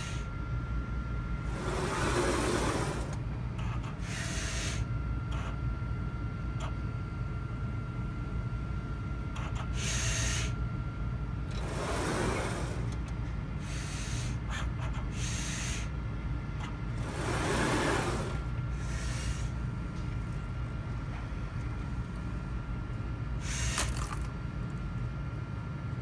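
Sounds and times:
robot machine humming: 0:01.4 - 0:05.5, 0:09.4 - 0:10.6, 0:11.4 - 0:16.0, 0:16.6 - 0:20.1, 0:23.4 - 0:24.3
motor whirring: 0:09.7 - 0:10.6, 0:11.5 - 0:14.4, 0:16.9 - 0:19.6, 0:23.4 - 0:24.2.

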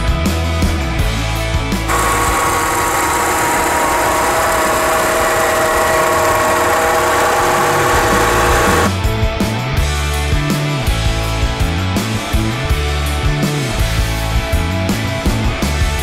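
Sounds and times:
pickup engine idling with whine: 0:01.9 - 0:08.9.

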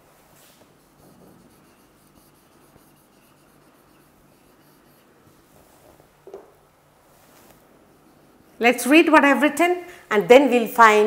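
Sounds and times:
marker writing on whiteboard: 0:00.7 - 0:05.4.

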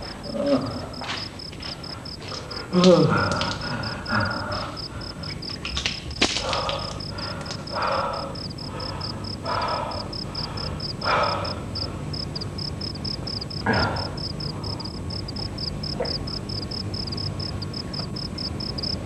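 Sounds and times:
crickets chirping: 0:00.0 - 0:19.0
man groaning: 0:13.6 - 0:14.2.

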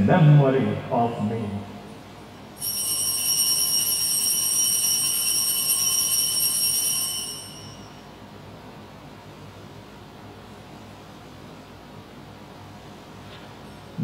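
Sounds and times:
altar bells ringing: 0:02.6 - 0:08.2.

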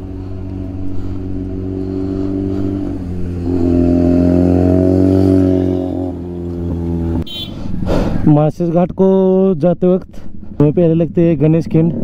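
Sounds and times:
motorcycle engine idling and revving: 0:00.0 - 0:07.9.

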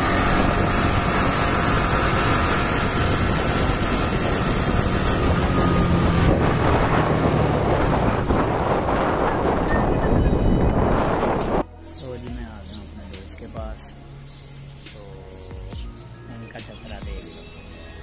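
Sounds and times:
motorcycle engine running: 0:00.0 - 0:11.6
wind rushing over microphone: 0:00.0 - 0:11.7.

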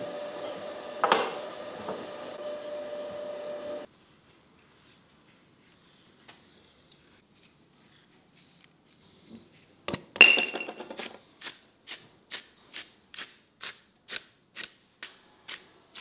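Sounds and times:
glass clinking: 0:01.0 - 0:01.4, 0:10.2 - 0:11.0
pepper grinder grinding: 0:10.6 - 0:16.0.

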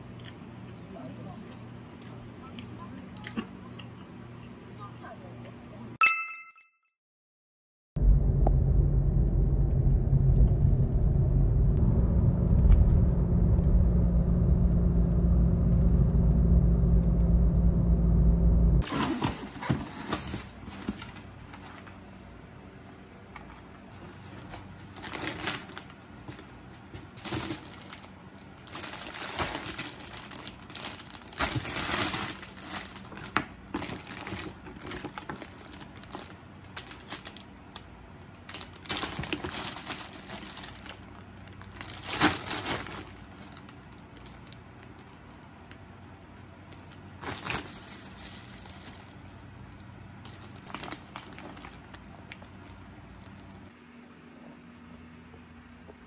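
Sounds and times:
loud low rumble: 0:08.0 - 0:18.8
plastic packaging crinkling: 0:24.8 - 0:26.5, 0:27.1 - 0:45.8, 0:46.7 - 0:53.7.

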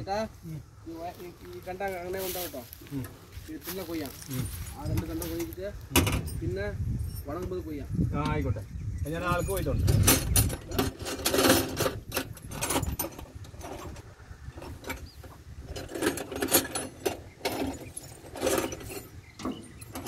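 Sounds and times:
hand tools clinking on metal: 0:09.2 - 0:14.0, 0:14.6 - 0:20.0.

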